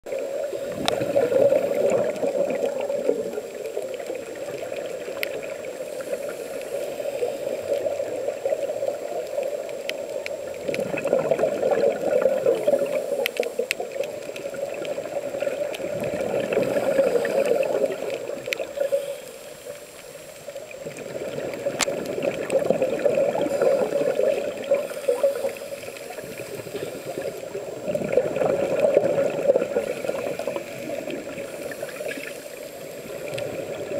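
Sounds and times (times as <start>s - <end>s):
regulator bubbles underwater: 0.0s - 33.9s
faint clicks: 0.7s - 33.9s.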